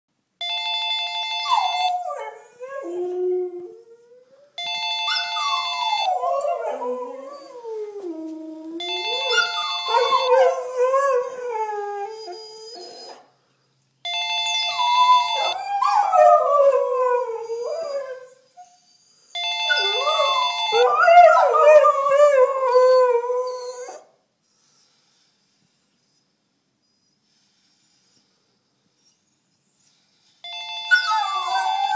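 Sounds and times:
phone ringtone melody: 0.4 - 2.0, 4.6 - 6.4, 8.8 - 10.7, 14.0 - 15.6, 19.4 - 21.1, 30.4 - 31.9
dogs howling: 5.4 - 8.1, 8.8 - 13.2, 19.7 - 24.0.

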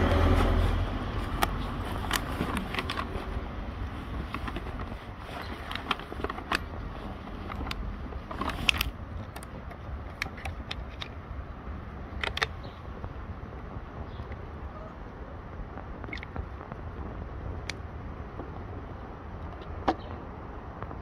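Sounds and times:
steady low rumble: 0.0 - 21.0
kitten crunching dry kibble: 0.6 - 13.4, 15.7 - 18.0.

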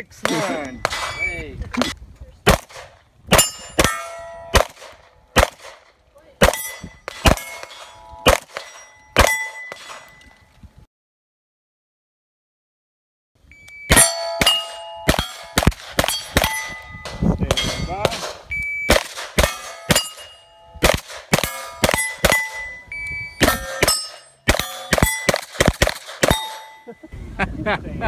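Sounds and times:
steel target plate ringing: 0.2 - 1.5, 3.3 - 5.4, 6.4 - 10.4, 13.8 - 18.2, 18.8 - 27.1
gunshots in rapid strings: 2.5 - 10.1, 15.1 - 16.7, 17.4 - 22.6, 23.4 - 26.8.

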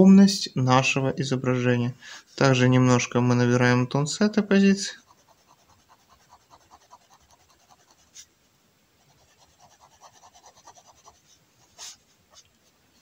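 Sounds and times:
pen scratching on paper: 5.0 - 8.3, 9.0 - 12.5.

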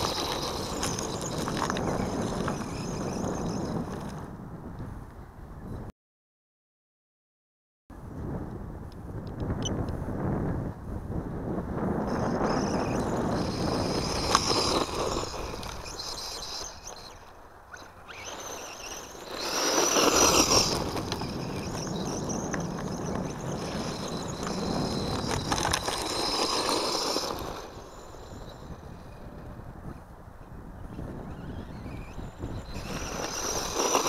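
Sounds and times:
tyres crunching on gravel: 0.0 - 4.1, 12.6 - 17.2, 18.0 - 28.6
toy car motor whining: 0.0 - 4.2, 12.1 - 30.0, 30.8 - 34.0.

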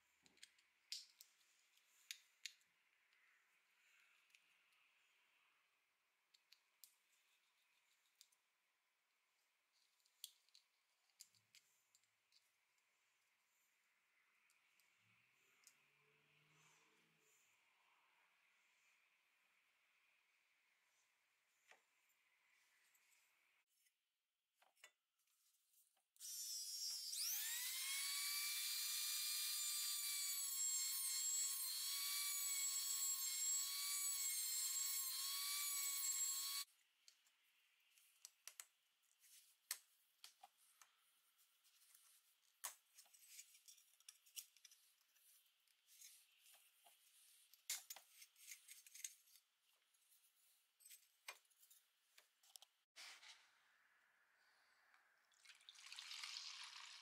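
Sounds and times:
rotary tool motor whining: 26.2 - 36.7.

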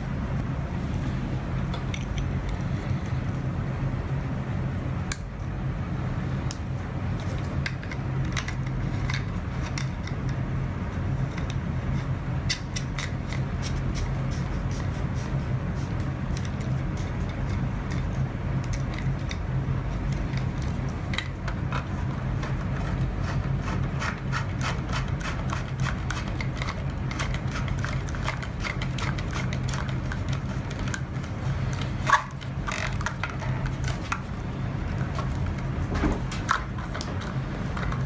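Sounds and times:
steady low hum: 0.0 - 38.0
plastic fittings rubbing and scraping: 11.2 - 38.0.

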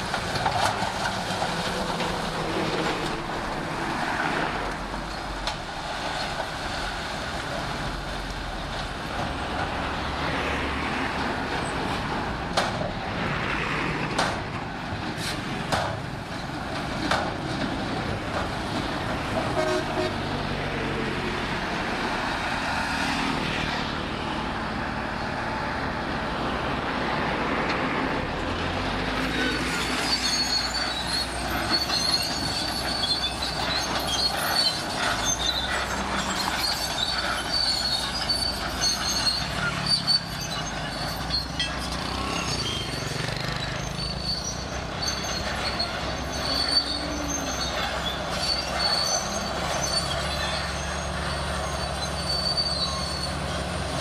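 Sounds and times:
steel tracks squeaking: 0.0 - 8.7, 29.2 - 54.0
diesel engines running: 0.0 - 54.0.

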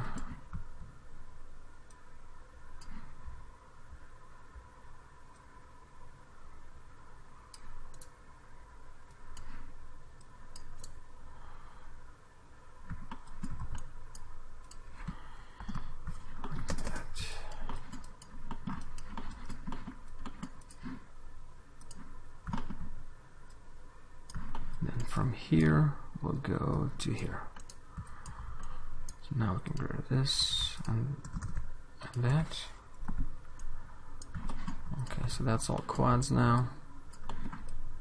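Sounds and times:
faint steady tone: 0.0 - 38.0
mouse buttons clicking: 21.8 - 22.9
keyboard keys clicking: 31.2 - 31.6.

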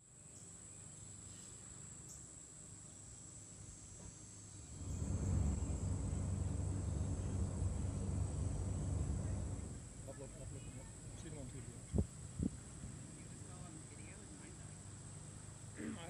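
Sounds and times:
insects chirring: 0.2 - 12.9
low rumble: 4.7 - 10.0.

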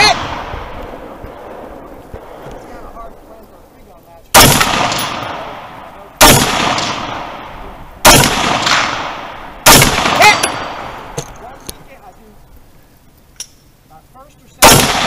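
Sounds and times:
rifle shots echoing: 0.0 - 3.3, 4.3 - 11.3, 14.6 - 15.0.

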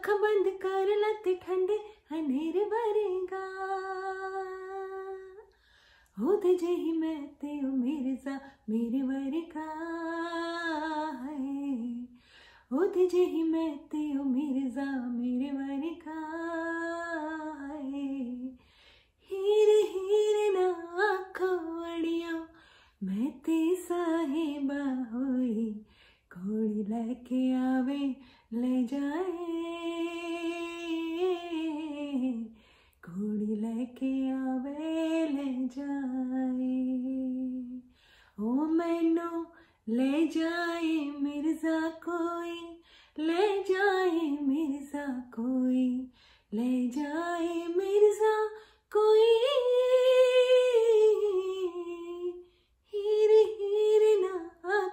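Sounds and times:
woman singing unaccompanied: 0.0 - 5.5, 6.2 - 18.6, 19.3 - 54.9
singer breathing: 5.5 - 6.2, 12.2 - 12.7, 18.6 - 19.2, 22.5 - 23.0, 25.8 - 26.3, 32.6 - 33.0, 37.8 - 38.4, 42.8 - 43.2, 46.1 - 46.5.

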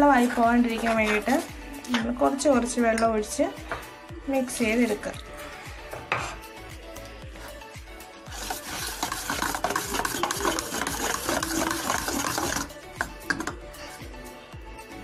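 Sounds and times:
fork stirring batter in a steel bowl: 0.1 - 1.5, 8.2 - 13.6
fork tapping bowl: 8.8 - 13.6.

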